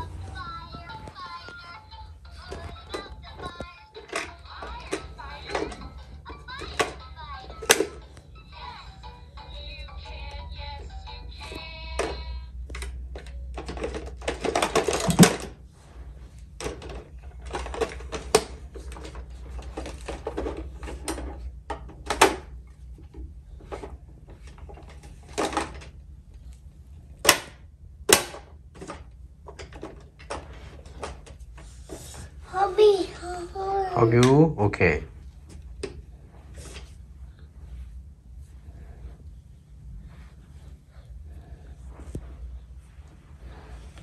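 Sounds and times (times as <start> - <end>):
plastic toy clicks and rattles: 2.4 - 8.0, 11.9 - 15.5, 16.6 - 22.4.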